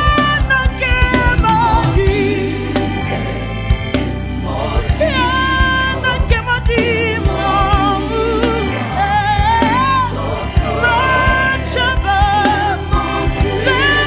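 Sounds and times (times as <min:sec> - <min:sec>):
band with drums guitar keyboards: 0:00.0 - 0:14.0
gospel song with backing vocals: 0:00.0 - 0:14.0.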